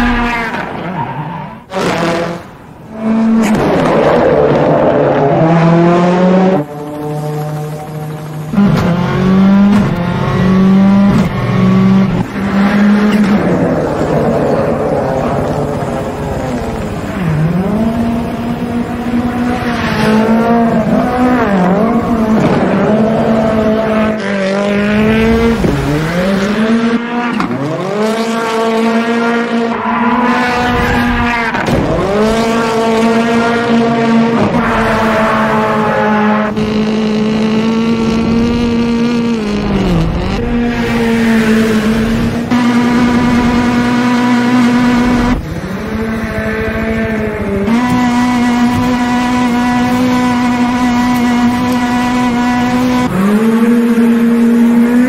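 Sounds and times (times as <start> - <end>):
engine noise: 0.0 - 55.0.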